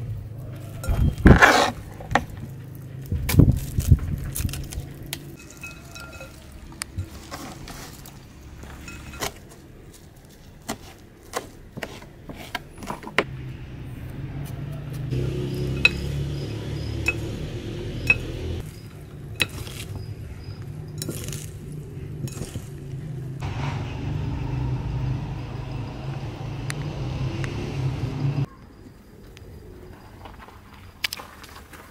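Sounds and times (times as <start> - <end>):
knife clinking against glass bowl: 5.4 - 6.6, 8.8 - 9.4, 15.7 - 16.1, 17.0 - 17.3, 19.4 - 19.9, 21.0 - 21.5, 22.2 - 22.7.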